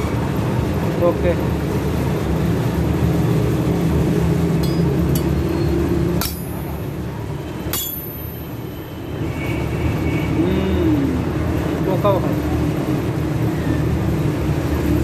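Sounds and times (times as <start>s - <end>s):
cleaver striking iron rod: 4.6s - 7.0s, 7.6s - 8.9s.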